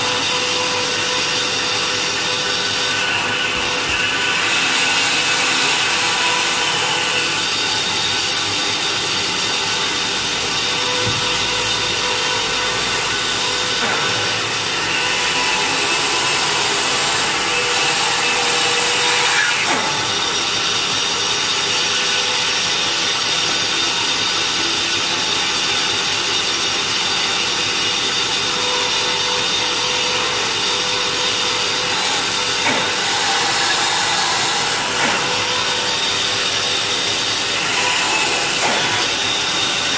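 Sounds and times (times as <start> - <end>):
band saw motor hum: 0.0 - 23.8, 28.2 - 39.9
saw blade hissing through wood: 31.7 - 39.9.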